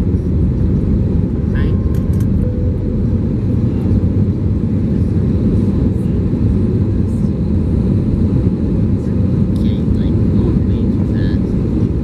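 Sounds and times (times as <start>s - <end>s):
airliner cabin engine noise: 0.0s - 12.0s.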